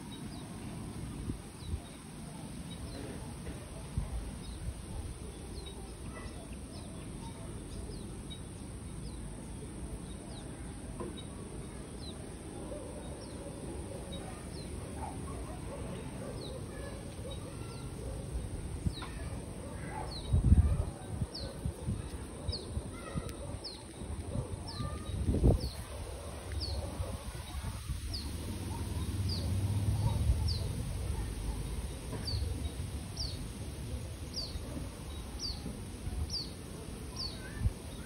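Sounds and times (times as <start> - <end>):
low outdoor rumble: 9.0 - 37.1.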